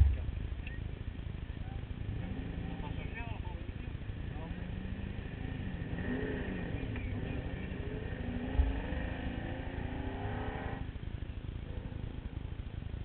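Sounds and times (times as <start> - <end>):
motorcycle engine revving: 0.0 - 13.0.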